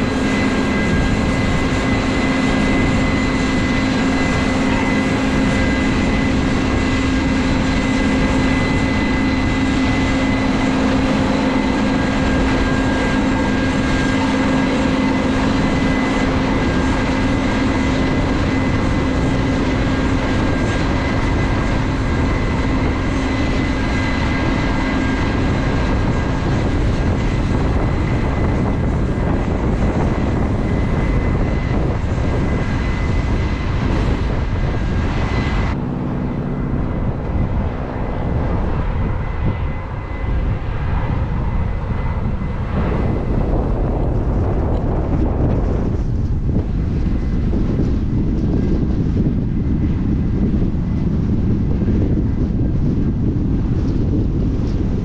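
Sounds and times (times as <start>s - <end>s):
combine harvester rumbling: 0.0s - 47.6s
high mechanical whine: 0.0s - 49.3s.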